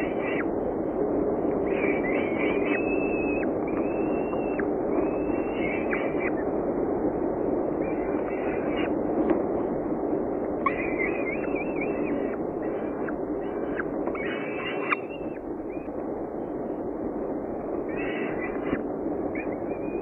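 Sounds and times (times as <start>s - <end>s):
falcon chicks begging calls: 0.0s - 0.6s, 1.4s - 6.4s, 7.7s - 9.0s, 10.5s - 16.0s, 17.8s - 20.0s.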